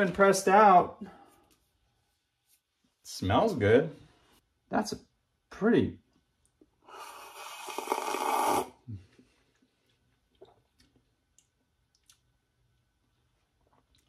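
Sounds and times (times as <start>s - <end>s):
slurping sip of coffee: 6.9s - 8.8s.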